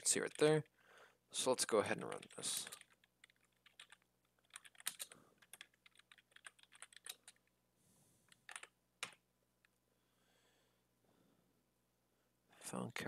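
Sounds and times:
keyboard typing: 2.0 - 7.5, 8.3 - 9.2.

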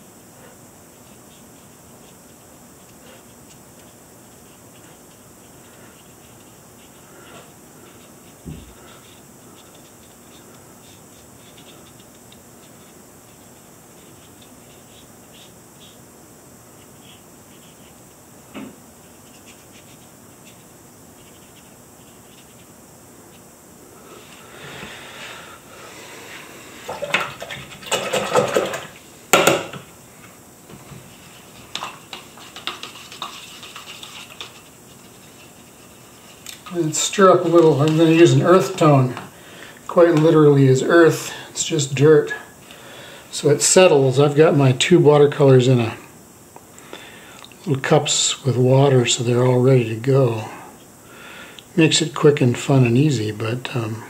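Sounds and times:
brush scratching on paper: 0.4 - 18.2, 19.0 - 23.5, 31.0 - 39.1
brush sloshing in water cup: 31.1 - 38.9.

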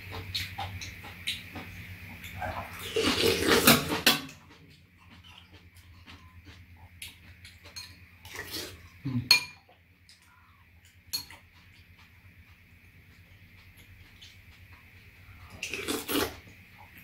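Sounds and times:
people eating: 0.0 - 17.0
spoons clinking on ceramic bowls: 7.7 - 8.0, 9.3 - 9.7, 11.1 - 11.5.

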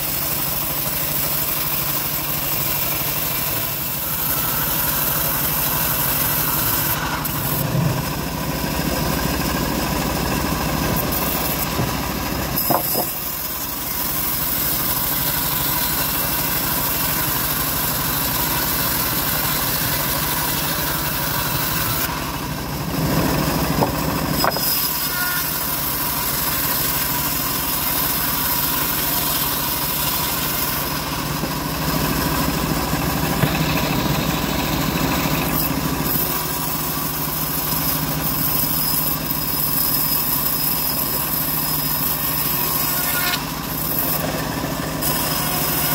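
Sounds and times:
saw blade cutting wood hiss: 0.0 - 22.4, 23.1 - 45.9
bandsaw mill humming: 0.0 - 45.9.

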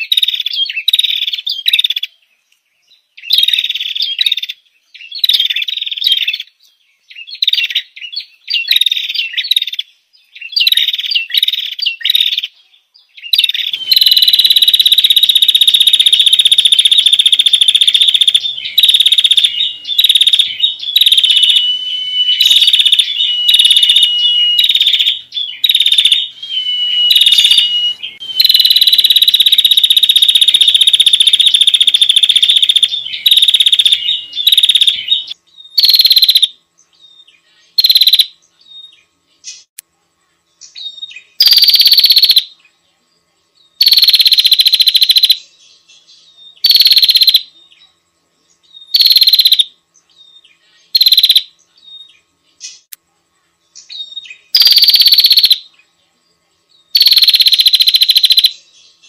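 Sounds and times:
bird chirped phrases: 0.0 - 43.9
songbird buzzing trills: 0.0 - 59.0.

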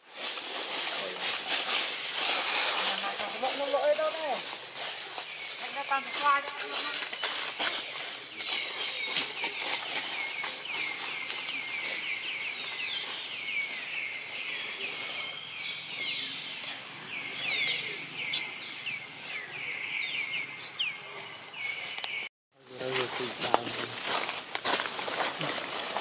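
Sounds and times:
chorus of falling chirps: 0.2 - 22.3.

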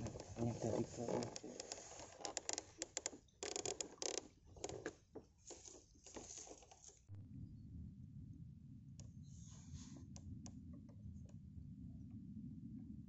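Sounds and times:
low rumble: 7.1 - 13.0.

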